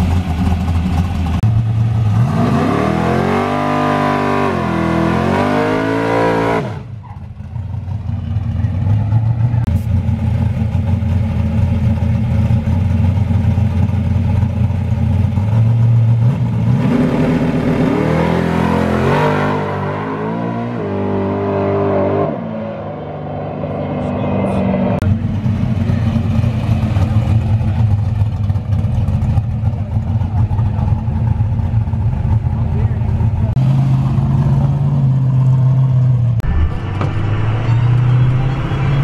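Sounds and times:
truck accelerating through gears: 0:00.0 - 0:39.0
pickup engine idling unevenly: 0:24.5 - 0:33.6.

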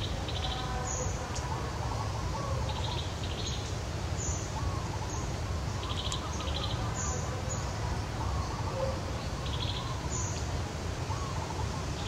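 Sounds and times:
low rumbling background noise: 0:00.0 - 0:12.0
small birds chirping: 0:00.0 - 0:12.0.

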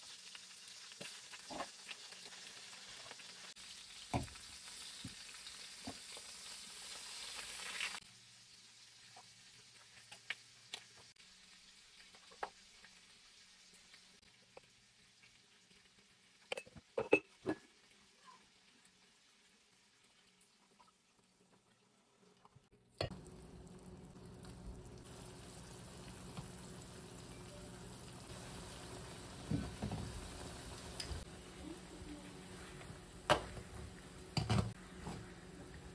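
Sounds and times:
meat and onion sizzling in a pan: 0:00.0 - 0:16.5, 0:17.3 - 0:20.8, 0:23.0 - 0:35.9
broth bubbling in a pot: 0:00.0 - 0:35.9.

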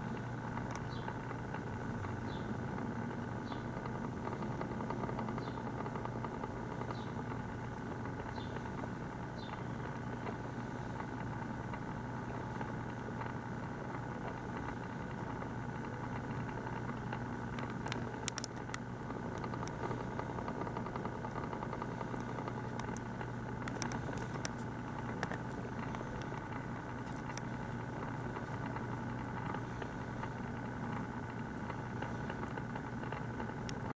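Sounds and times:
low mechanical hum: 0:00.0 - 0:34.0
faint clicks: 0:00.1 - 0:02.4, 0:12.5 - 0:33.9.

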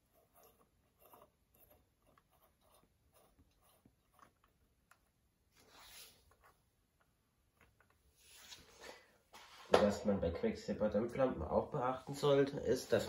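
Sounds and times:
soft rustle: 0:05.4 - 0:09.7.

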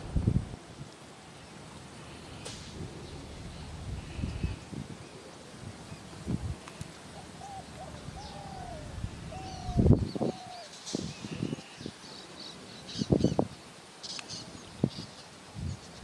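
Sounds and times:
birds whistling: 0:02.1 - 0:04.6, 0:07.2 - 0:11.9
low thumps: 0:02.4 - 0:04.9, 0:07.6 - 0:10.2
high bird chirping: 0:07.2 - 0:10.7.

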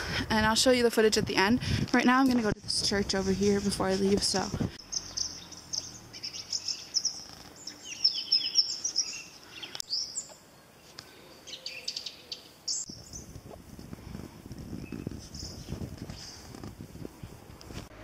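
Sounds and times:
small birds chirping: 0:02.5 - 0:13.5, 0:14.6 - 0:17.4.

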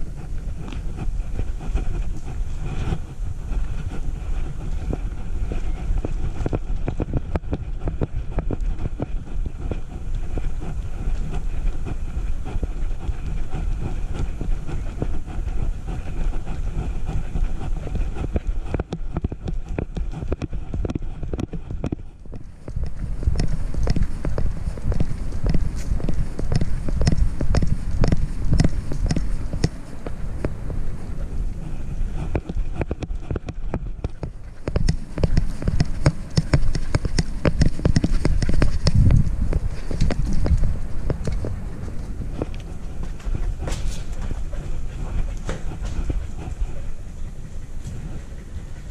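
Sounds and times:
camera rubbing and rumbling: 0:00.0 - 0:48.9
quick irregular clicks and taps: 0:18.2 - 0:30.6, 0:32.2 - 0:41.6
camera mount rubbing and bumping: 0:32.2 - 0:42.6.

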